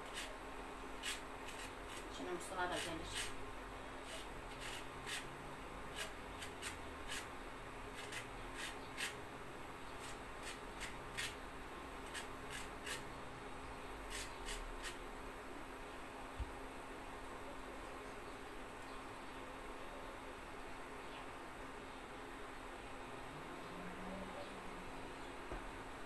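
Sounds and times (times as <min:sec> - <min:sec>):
lemon peel grating: 0:00.0 - 0:00.4, 0:01.0 - 0:03.4, 0:04.0 - 0:07.3, 0:07.9 - 0:09.2, 0:10.0 - 0:11.4, 0:12.0 - 0:13.1, 0:14.1 - 0:15.0
faint steady hum: 0:00.0 - 0:26.0.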